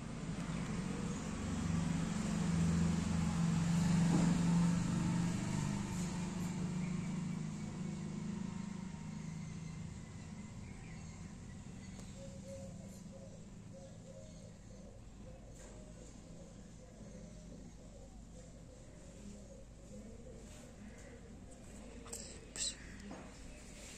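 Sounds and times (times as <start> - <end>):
vehicle engine passing: 0.0 - 14.8.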